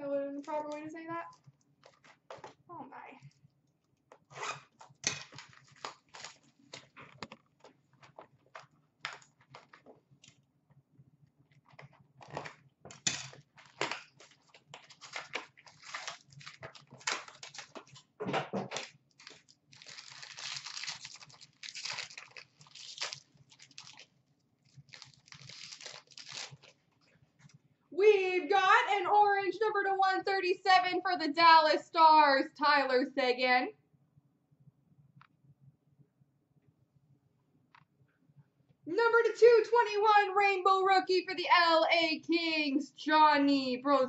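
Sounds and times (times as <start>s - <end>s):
plastic wrapping and cardboard ripping: 4.4s - 7.0s, 13.4s - 18.1s, 18.7s - 26.8s.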